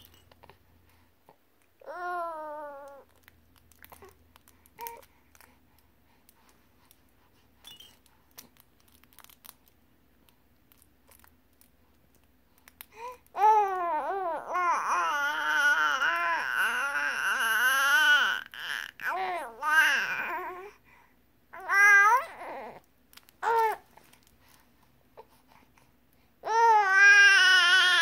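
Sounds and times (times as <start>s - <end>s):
baby vocalising: 13.0s - 20.8s, 21.6s - 22.8s.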